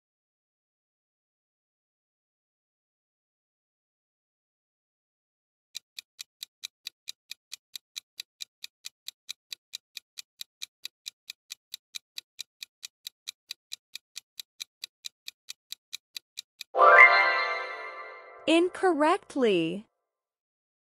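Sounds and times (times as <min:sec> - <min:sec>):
clock ticking: 0:05.8 - 0:16.7.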